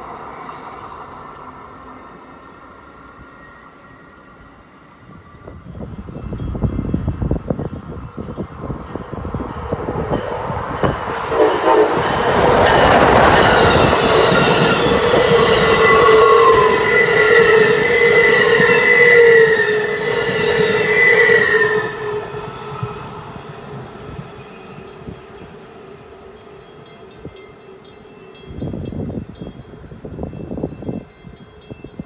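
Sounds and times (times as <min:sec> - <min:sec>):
train wheels rushing on rail: 0:00.0 - 0:32.0
high wheel squeal: 0:09.3 - 0:23.2.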